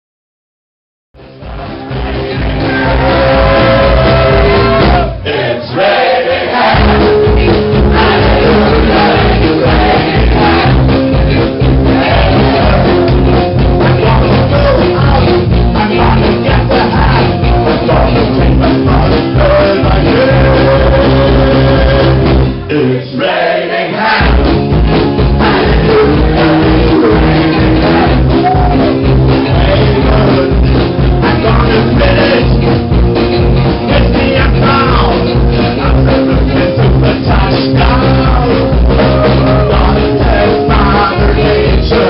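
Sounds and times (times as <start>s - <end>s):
live country band playing: 1.2s - 42.0s
person singing: 6.7s - 23.3s, 25.3s - 32.6s, 33.8s - 42.0s.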